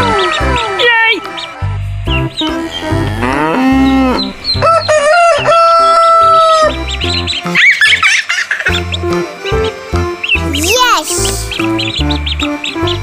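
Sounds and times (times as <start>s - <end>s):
chicks peeping: 0.0s - 13.0s
rooster crowing: 2.6s - 6.7s.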